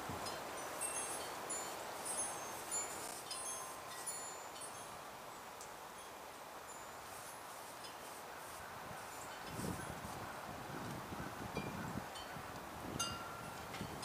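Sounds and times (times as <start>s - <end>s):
faint breeze: 0.0s - 14.0s
wind chime tinkling: 0.2s - 8.2s, 13.0s - 14.0s.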